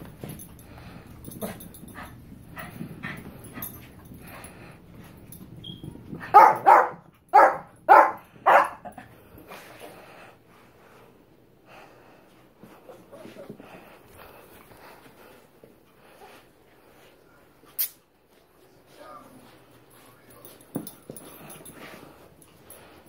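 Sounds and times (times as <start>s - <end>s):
dogs barking: 6.3s - 8.9s.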